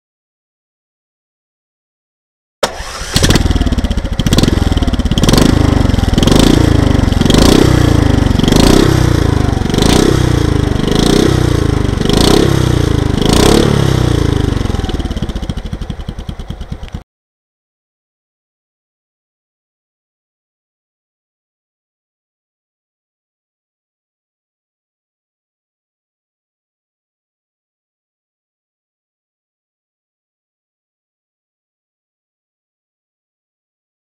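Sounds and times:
scooter engine revving: 2.6 - 17.0.

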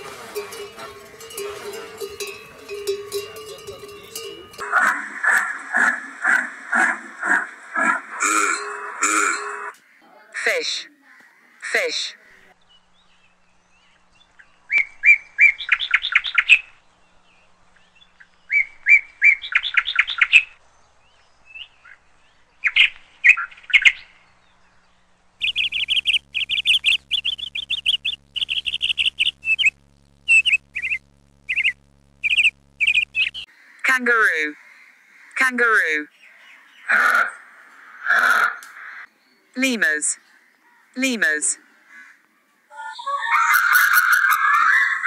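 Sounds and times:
high bird-like chirping: 0.0 - 9.8, 25.4 - 33.5
low steady hum: 0.0 - 9.8, 24.0 - 34.6.

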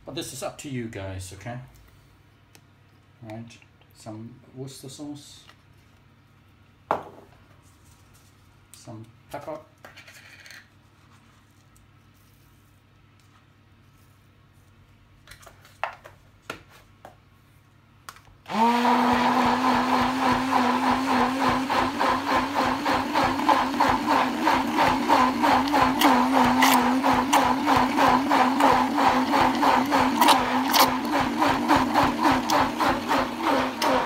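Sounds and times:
stick blender humming: 18.5 - 34.0.

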